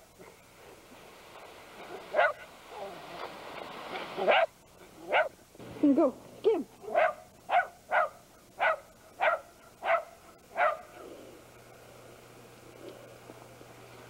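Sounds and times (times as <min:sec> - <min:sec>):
dog barking: 0:01.9 - 0:02.5, 0:04.2 - 0:05.4, 0:06.8 - 0:11.0.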